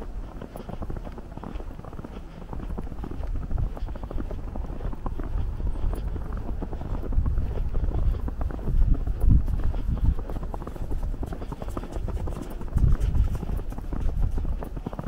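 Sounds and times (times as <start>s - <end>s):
footsteps crunching in snow: 0.0s - 15.0s
wind rumble on microphone: 0.0s - 15.0s.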